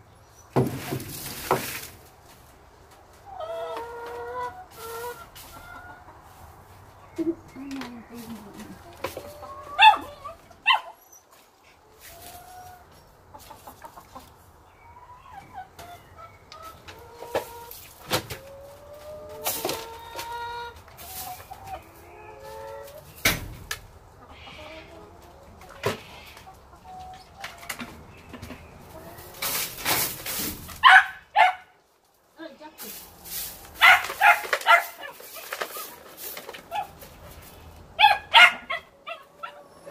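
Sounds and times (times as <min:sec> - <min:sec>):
brush and dustpan scraping ground: 0:00.6 - 0:02.6, 0:03.8 - 0:06.8, 0:11.3 - 0:12.8, 0:16.6 - 0:23.1, 0:29.0 - 0:31.0, 0:32.7 - 0:38.5
hens clucking: 0:00.8 - 0:39.9.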